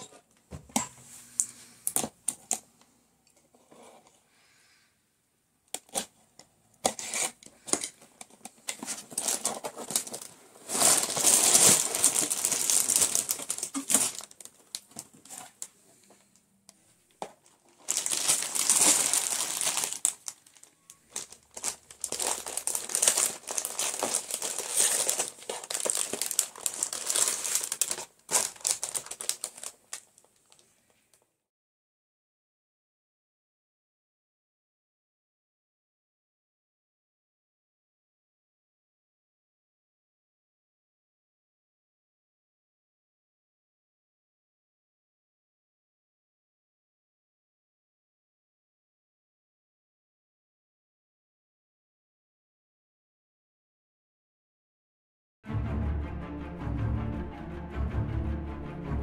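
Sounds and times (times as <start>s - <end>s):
plastic packaging crinkling: 6.9s - 15.7s, 17.3s - 30.6s.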